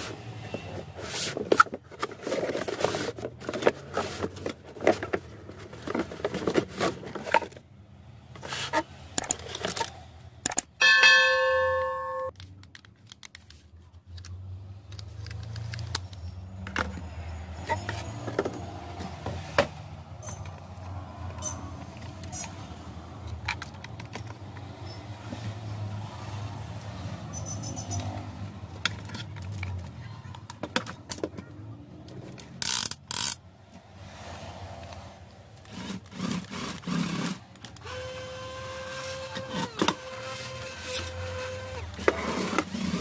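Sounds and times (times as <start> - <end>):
cardboard and plastic rattling: 0.5 - 7.7.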